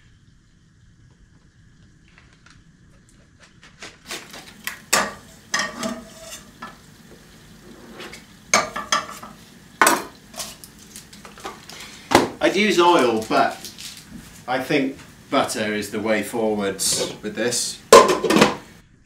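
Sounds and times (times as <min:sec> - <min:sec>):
utensil scraping a pan: 0:03.2 - 0:12.1, 0:16.8 - 0:18.7
butter sizzling in a frying pan: 0:04.1 - 0:18.8.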